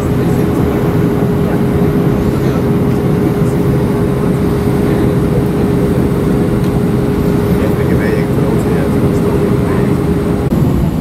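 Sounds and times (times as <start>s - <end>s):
airliner cabin rumble: 0.0s - 11.0s
steady hum: 0.0s - 11.0s.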